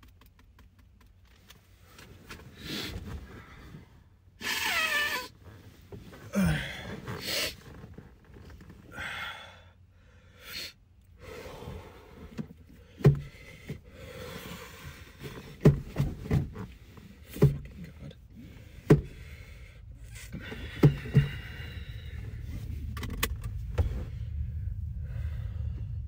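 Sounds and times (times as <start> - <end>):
man breathing raggedly and gasping: 6.2 - 7.7, 8.9 - 15.6, 18.0 - 22.9, 23.6 - 26.0
knocks and thuds inside car: 11.6 - 26.0.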